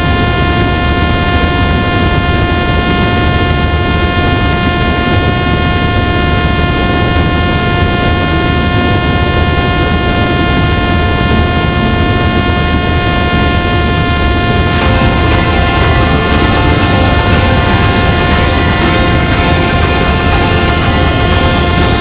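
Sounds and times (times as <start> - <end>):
drone motor whine: 11.5 - 22.0.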